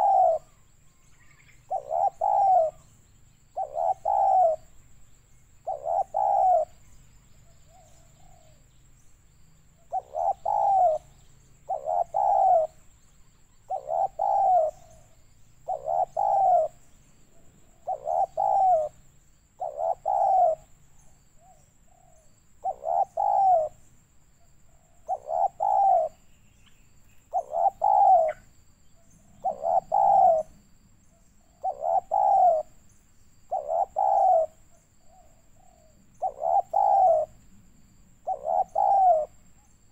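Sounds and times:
dove cooing: 0.0 - 0.6, 1.2 - 2.9, 3.5 - 4.8, 5.6 - 8.6, 9.8 - 12.9, 13.6 - 16.9, 17.6 - 19.0, 19.6 - 23.8, 24.7 - 26.2, 27.3 - 28.5, 29.2 - 30.6, 31.4 - 32.8, 33.5 - 37.4, 38.2 - 39.9.

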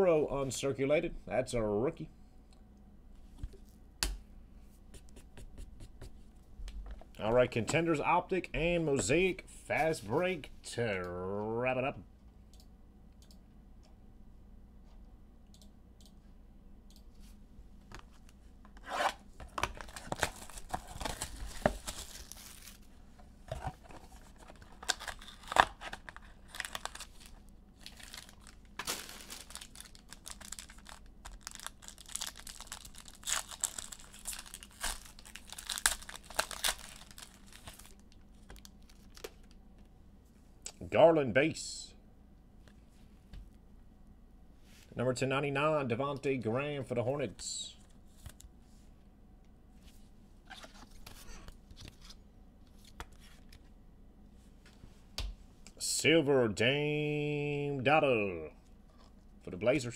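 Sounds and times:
wrappers tearing and crinkling: 19.7 - 22.9, 24.1 - 39.6.

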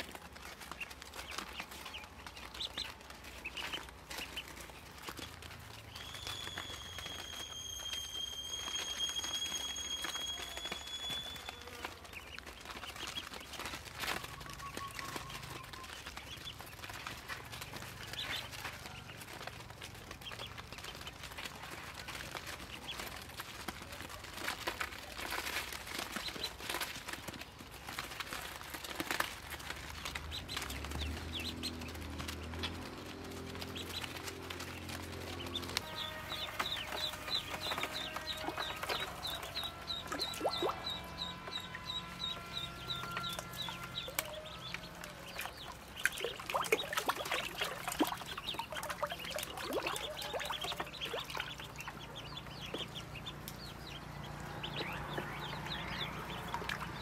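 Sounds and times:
ducklings peeping: 0.0 - 57.0.

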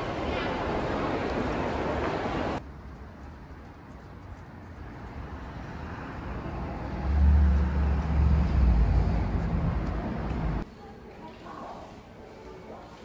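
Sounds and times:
city road traffic: 0.0 - 10.7
vehicle engine rumble passing: 4.0 - 10.6.

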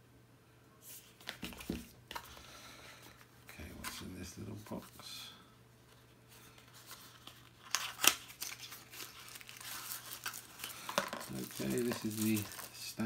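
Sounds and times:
paper packaging rustling and tearing: 6.5 - 13.0.

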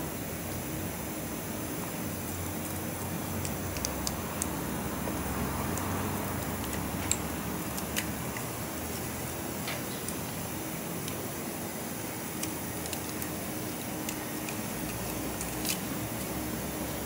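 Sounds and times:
steady shop hum: 0.0 - 17.0.

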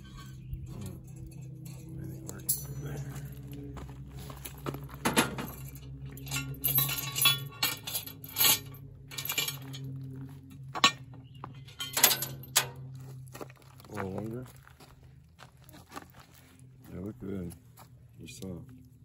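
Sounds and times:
steady low hum: 0.0 - 19.0
metal lid clinks and knocks: 5.0 - 9.8, 10.8 - 12.9.

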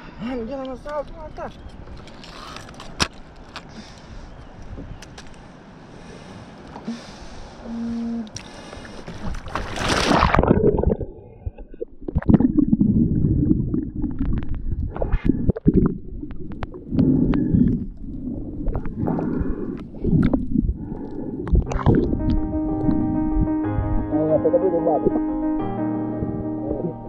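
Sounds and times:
underwater water surges: 8.4 - 22.4
camera splashing into water: 9.2 - 10.8
underwater bubbles: 9.2 - 23.5.

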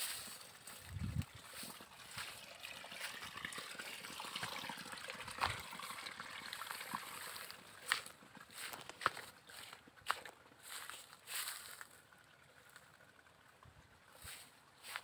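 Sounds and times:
footsteps on dry ground: 0.0 - 3.2, 6.9 - 12.0, 14.2 - 15.0
rustling on dry ground: 0.0 - 3.3, 6.8 - 13.0, 14.1 - 15.0.

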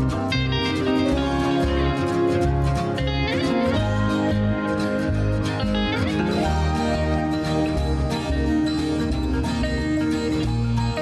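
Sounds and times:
bass line: 0.0 - 11.0
guitar background music: 0.0 - 11.0.

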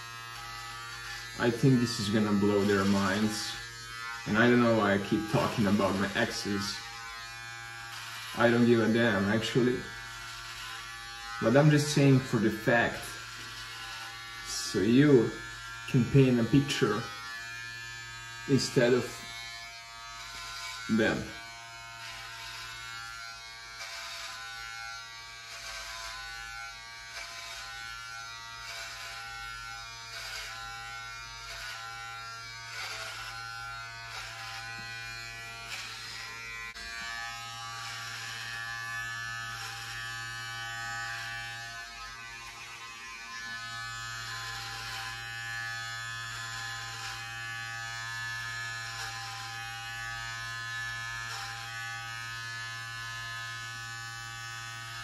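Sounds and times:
electric hair clippers buzzing: 0.0 - 55.0.

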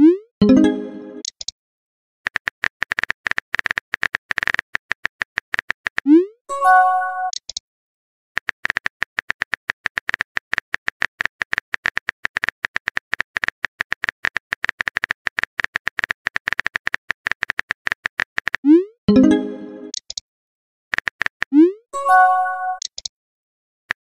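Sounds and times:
keyboard typing clicks: 8.4 - 20.2, 22.4 - 23.1.

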